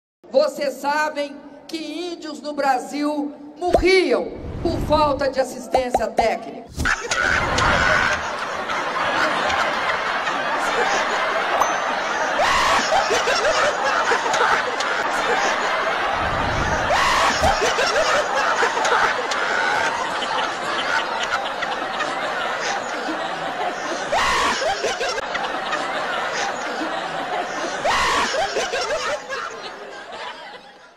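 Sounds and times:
people laughing hard: 6.8s - 30.9s.

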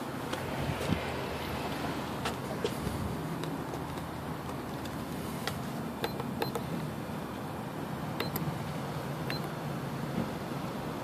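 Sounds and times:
keypad electronic beeps: 6.0s - 6.7s, 8.2s - 8.5s, 9.3s - 9.5s.

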